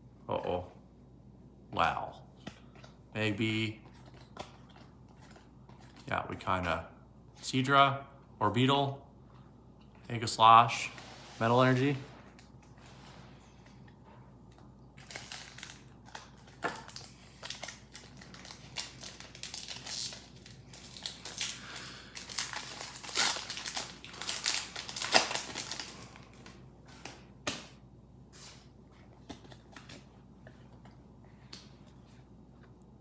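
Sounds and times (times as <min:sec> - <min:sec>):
foil wrapper crinkling and tearing: 0:14.9 - 0:26.6.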